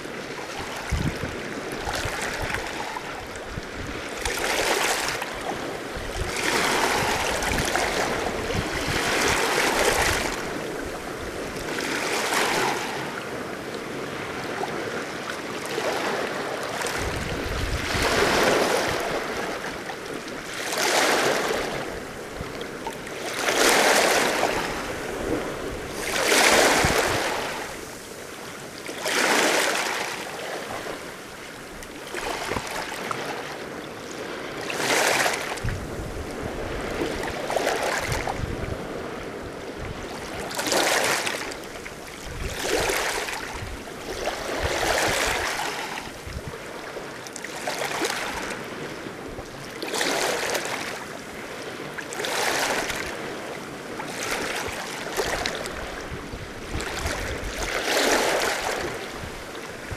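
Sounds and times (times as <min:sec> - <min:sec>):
waves washing on rocky shore: 0:00.0 - 0:59.9
wind buffeting microphone: 0:00.2 - 0:14.7, 0:16.7 - 0:20.5, 0:21.2 - 0:28.4, 0:35.4 - 0:40.7, 0:41.4 - 0:46.9, 0:52.8 - 0:59.9.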